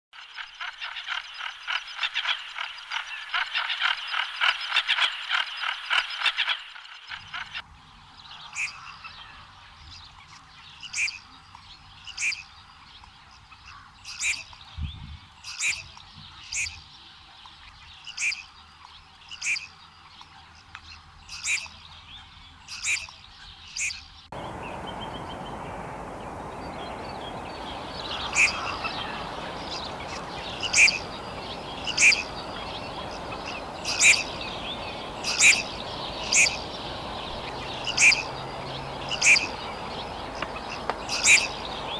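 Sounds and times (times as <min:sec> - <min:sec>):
background hiss: 0:24.3 - 0:41.9
duck calls: 0:24.4 - 0:38.3.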